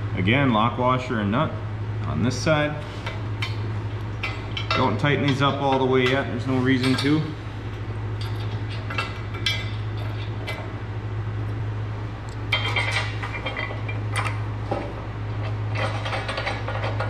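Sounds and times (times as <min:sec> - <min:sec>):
low hum: 0:00.0 - 0:17.0
metal nuts and washers clinking: 0:04.2 - 0:07.4, 0:08.2 - 0:10.7, 0:12.5 - 0:17.0.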